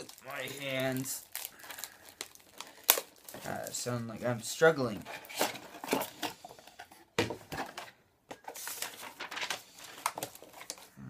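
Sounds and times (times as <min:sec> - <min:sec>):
cardboard rustling and scraping: 0:03.3 - 0:10.9.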